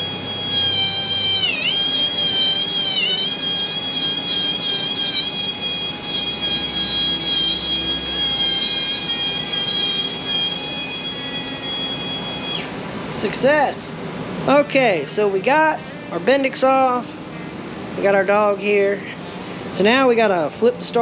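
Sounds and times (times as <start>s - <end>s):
electric grinder whining: 0.0s - 12.9s.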